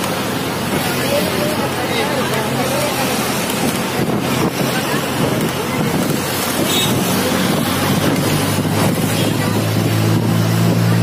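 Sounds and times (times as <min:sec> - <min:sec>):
bus engine running: 0:00.0 - 0:11.0
road noise: 0:00.0 - 0:11.0
wind on microphone: 0:02.8 - 0:11.0.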